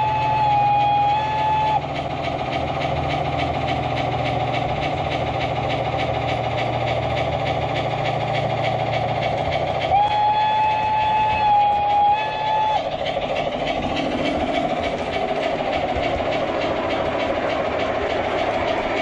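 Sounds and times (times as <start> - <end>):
train whistle: 0.0 - 1.9, 9.8 - 13.0
model train rumble: 0.0 - 19.0
steam chuffing sound effect: 0.0 - 19.0.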